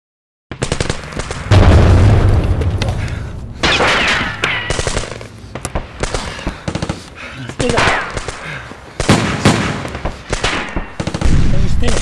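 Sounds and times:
sharp cracks: 0.5s - 12.0s
explosion blast with low rumble: 1.3s - 4.9s.

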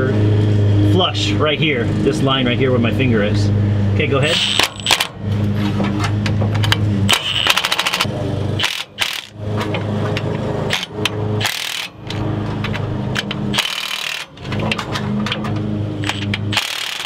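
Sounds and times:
cordless power wrench spinning: 4.3s - 5.2s, 7.1s - 9.4s, 10.7s - 12.2s, 13.2s - 14.8s, 16.0s - 17.0s.

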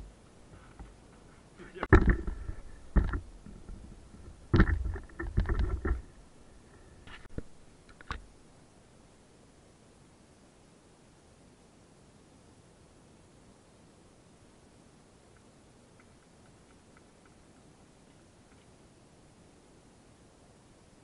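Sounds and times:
microphone handling knocks: 1.8s - 6.1s.

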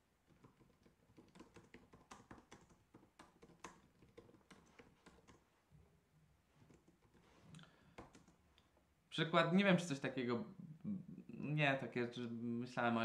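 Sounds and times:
typing on computer keyboard: 0.3s - 5.4s, 7.9s - 8.4s.

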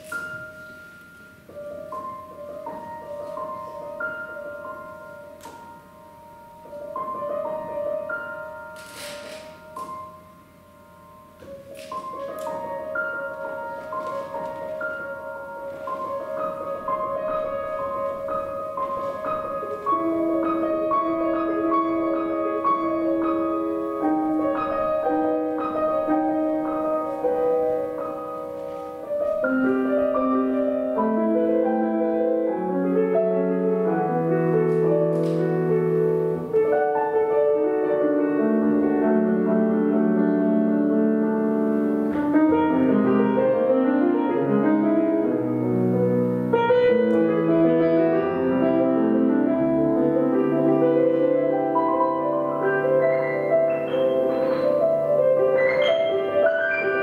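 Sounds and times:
instrumental quartet playing: 11.8s - 57.0s.

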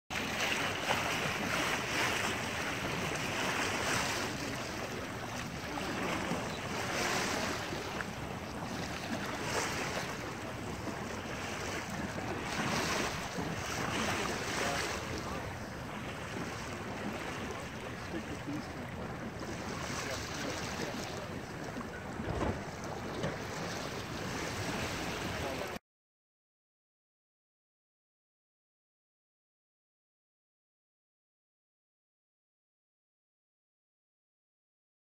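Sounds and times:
water washing along hull: 0.1s - 25.8s.

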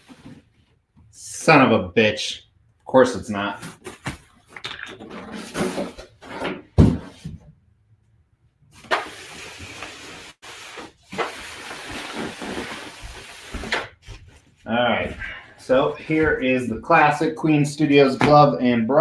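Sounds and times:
plastic wrap rustling: 10.4s - 14.6s.

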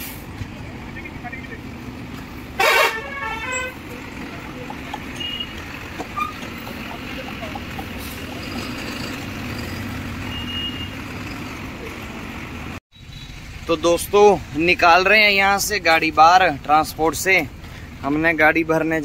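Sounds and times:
truck horn toot: 2.6s - 3.9s, 5.1s - 6.5s, 10.2s - 11.2s
truck engine running low: 3.5s - 12.8s.

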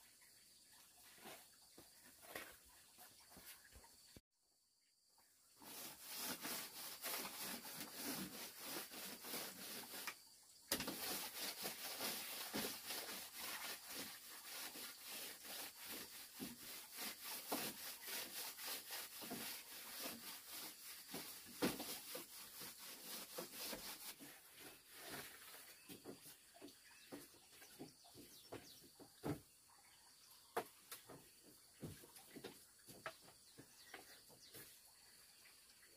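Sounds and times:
rubbing strokes on bamboo: 5.6s - 29.4s.

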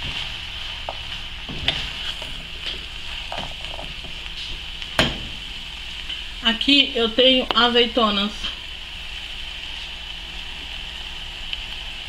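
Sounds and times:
food sizzling in a pot: 0.0s - 12.0s
spatula scraping a pot: 1.6s - 4.1s.

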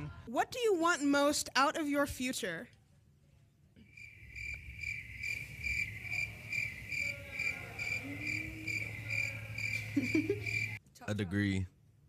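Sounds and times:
crickets chirping: 3.8s - 10.8s.

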